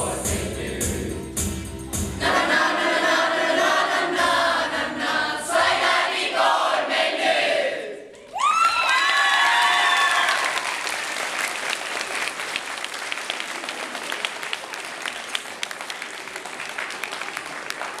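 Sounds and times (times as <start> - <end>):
shouted cheers: 8.2 - 11.0
audience applauding: 8.2 - 18.0.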